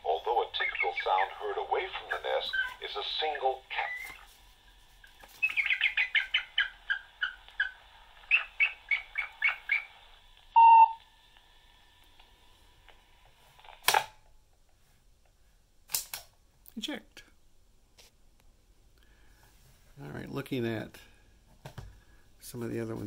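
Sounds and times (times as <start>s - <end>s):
eagle calls through small speaker: 0.2s - 4.3s, 5.4s - 10.1s.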